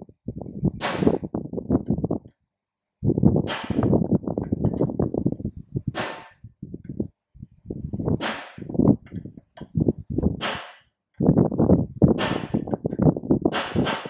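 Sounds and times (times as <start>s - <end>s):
hammer striking steel punch: 10.4s - 10.8s.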